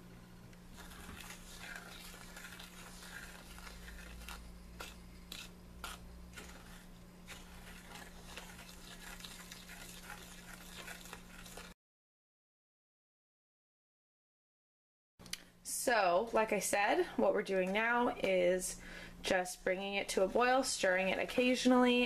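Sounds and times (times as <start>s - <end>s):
steady low hum: 0.0s - 11.7s
wooden spoon scraping a saucepan: 0.7s - 11.8s.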